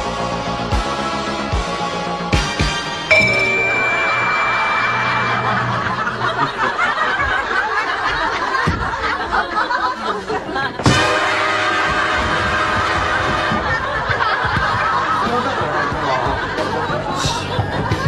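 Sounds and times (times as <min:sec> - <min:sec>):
background music: 0:00.0 - 0:07.6, 0:10.9 - 0:18.0
held tone: 0:03.1 - 0:07.0
studio audience laughing: 0:05.0 - 0:18.0.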